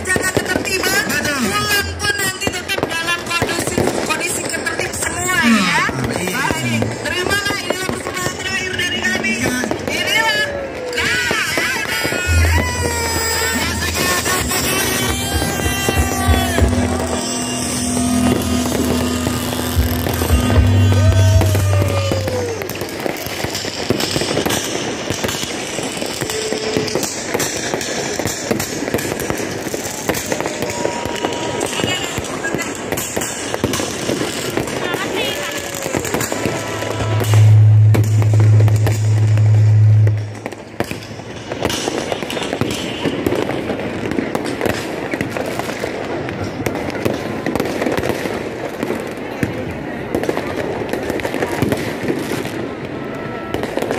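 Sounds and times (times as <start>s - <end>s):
fireworks cracking and popping: 0.0s - 53.9s
low drone of music: 12.3s - 22.3s, 36.5s - 40.6s
downward sliding tone: 12.3s - 22.7s, 36.2s - 40.6s
loud low hum: 12.3s - 22.8s, 36.3s - 40.8s.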